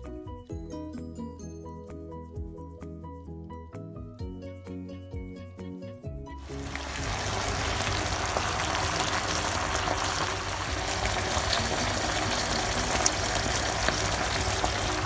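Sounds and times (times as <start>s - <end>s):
sauce bubbling and sizzling: 6.4s - 15.0s.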